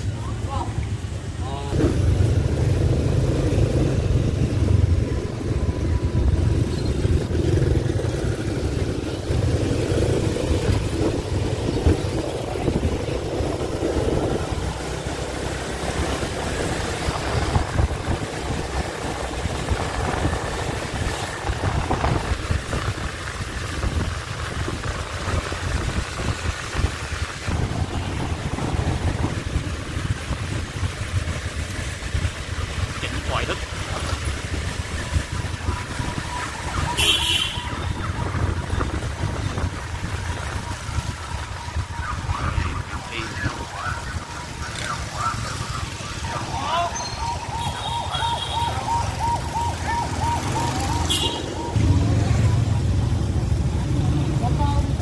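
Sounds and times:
motorbikes passing: 0.0s - 55.0s
wind rumble on microphone: 1.8s - 45.4s.

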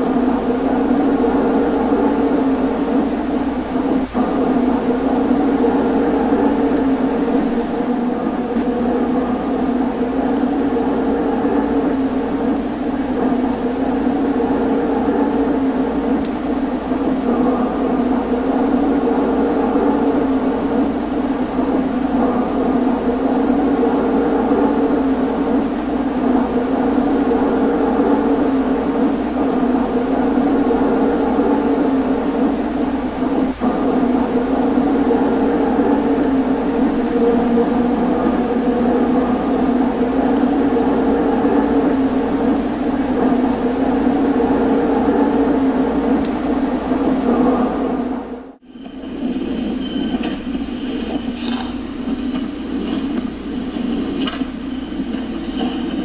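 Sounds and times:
model trains whirring: 48.8s - 56.0s.

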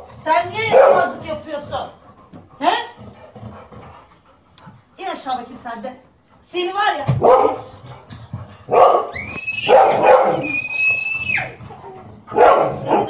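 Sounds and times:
dog barking: 0.6s - 1.2s, 7.2s - 7.7s, 8.7s - 10.4s, 12.3s - 13.0s
dog whining high-pitched: 9.1s - 11.7s.

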